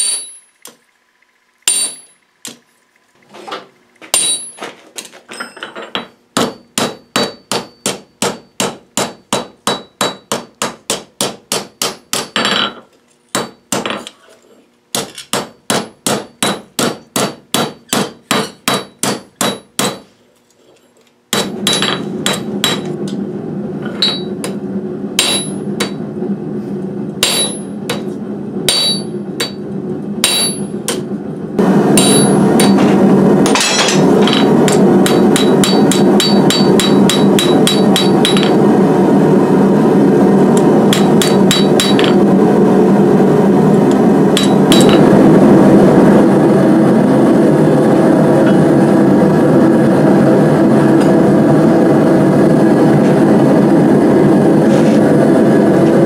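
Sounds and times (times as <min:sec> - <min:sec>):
hammer ringing on anvil: 0:00.0 - 0:00.5, 0:01.7 - 0:02.2, 0:04.1 - 0:04.6, 0:05.4 - 0:12.8, 0:15.3 - 0:20.0, 0:21.3 - 0:22.9, 0:24.0 - 0:24.6, 0:25.2 - 0:26.0, 0:27.2 - 0:28.1, 0:28.7 - 0:29.6, 0:30.2 - 0:31.0, 0:32.0 - 0:38.6, 0:40.9 - 0:42.2, 0:44.4 - 0:45.0
steady rushing noise: 0:27.2 - 0:56.0.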